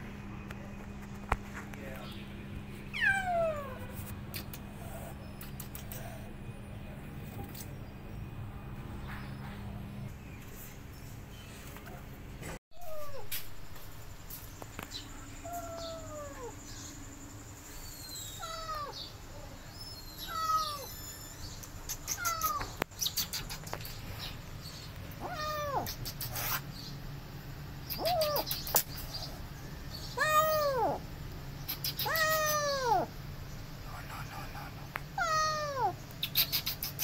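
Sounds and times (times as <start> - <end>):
kittens meowing: 2.9 - 6.3, 12.8 - 13.3, 15.4 - 16.6, 18.1 - 19.1, 20.0 - 21.0, 21.9 - 22.8, 25.1 - 26.2, 27.9 - 28.8, 30.0 - 31.0, 31.7 - 33.1, 35.2 - 37.0
kittens hissing and spitting: 25.7 - 26.7.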